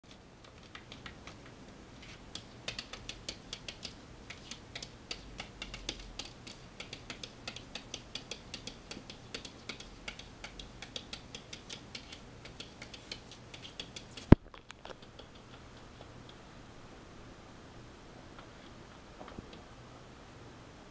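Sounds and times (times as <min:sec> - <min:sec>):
claws tapping on glass: 0:02.3 - 0:16.4.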